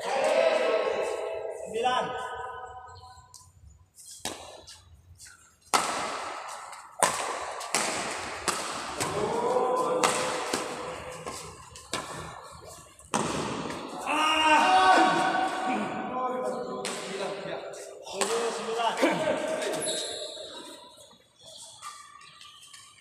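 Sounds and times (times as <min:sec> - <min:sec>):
sharp hits echoing in hall: 0:05.6 - 0:20.7.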